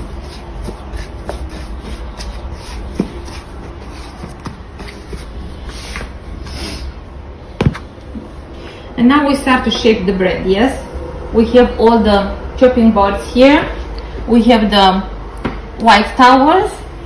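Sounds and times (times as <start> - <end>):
hands kneading dough on wood: 0.0 - 6.2.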